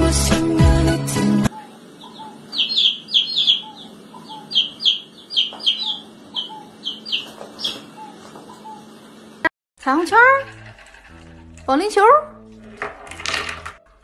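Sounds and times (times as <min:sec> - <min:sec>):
chicks peeping: 0:01.5 - 0:09.4.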